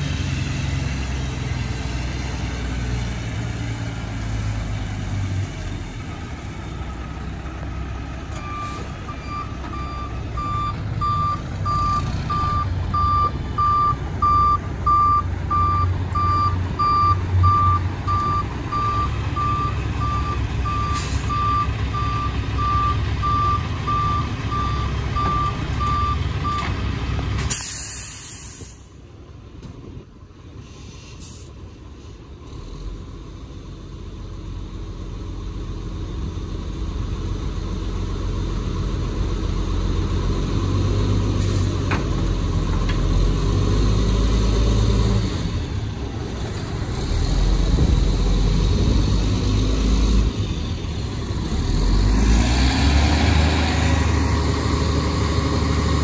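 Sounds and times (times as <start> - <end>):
diesel engine rumbling: 0.0 - 56.0
truck backup alarm beeping: 8.3 - 26.8
air brakes hissing: 20.9 - 21.4, 27.4 - 29.0, 30.6 - 32.2.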